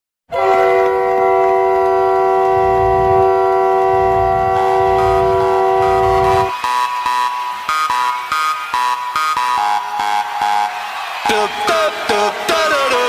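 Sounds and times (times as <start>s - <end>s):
arena goal horn: 0.3s - 12.0s
low pulsing beat: 1.0s - 7.2s.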